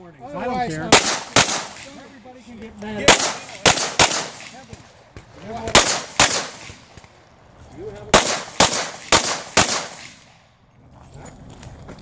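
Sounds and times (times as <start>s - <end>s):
pistol shots: 0.9s - 2.1s, 3.0s - 7.1s, 8.1s - 10.4s.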